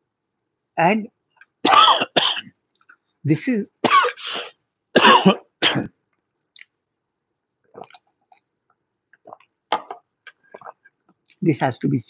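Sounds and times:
man coughing: 1.7s - 2.5s, 3.8s - 6.0s
sipping water from a glass: 7.7s - 8.5s, 9.1s - 11.4s.

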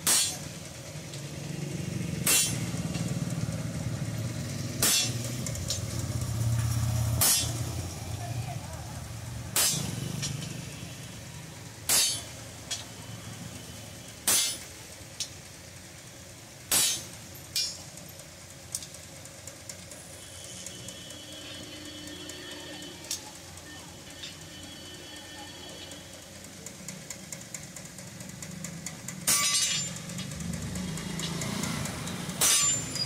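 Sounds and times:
sledgehammer striking chisel: 0.0s - 0.5s, 2.2s - 2.8s, 4.8s - 5.4s, 7.2s - 7.6s, 9.6s - 10.4s, 11.9s - 12.4s, 14.3s - 14.7s, 16.7s - 17.8s, 29.2s - 30.4s, 31.0s - 33.0s
light metal clinks: 26.8s - 33.0s.

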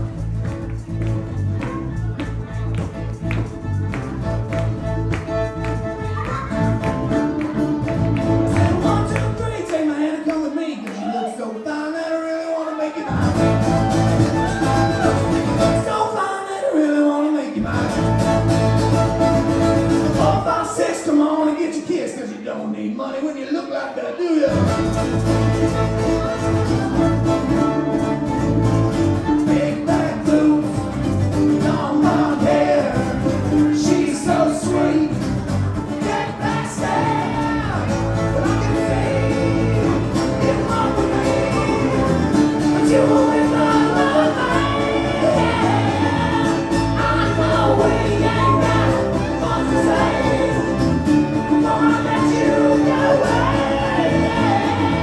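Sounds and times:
acoustic band playing: 0.0s - 11.3s, 13.0s - 21.8s, 24.4s - 55.0s
men singing: 8.3s - 10.3s, 11.6s - 21.8s, 29.2s - 55.0s.

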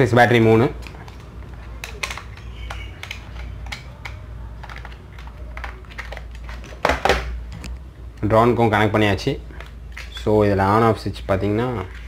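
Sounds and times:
plastic clicks and taps: 0.8s - 7.8s.

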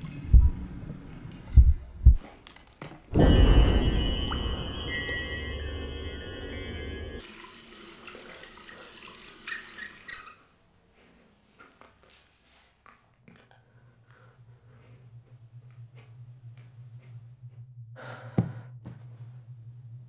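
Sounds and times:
low hum: 0.0s - 2.2s, 3.1s - 7.2s
steady held tones: 3.1s - 7.2s.

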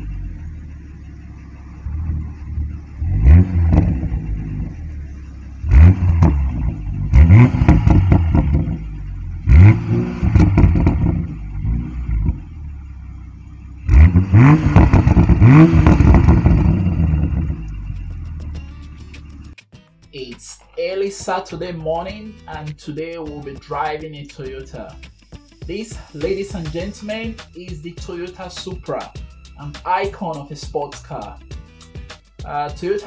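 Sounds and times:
car engine revving: 0.0s - 19.5s.

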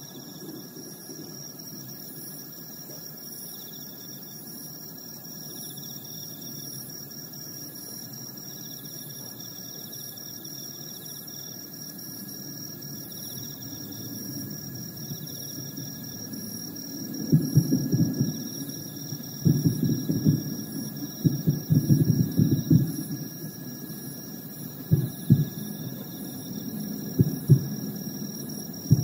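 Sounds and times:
insects chirping: 0.0s - 29.0s
distant jet airliner rumble: 24.8s - 29.0s.

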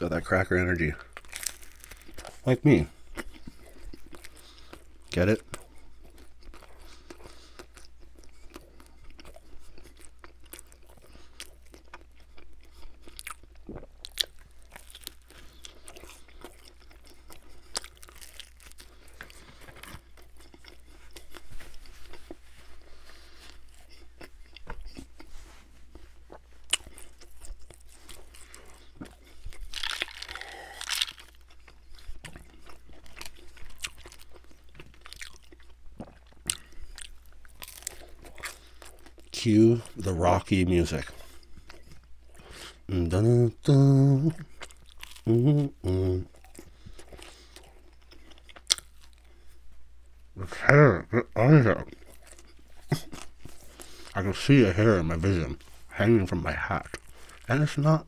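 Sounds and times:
crunchy chewing: 0.3s - 42.9s, 44.3s - 49.6s, 51.6s - 58.0s.

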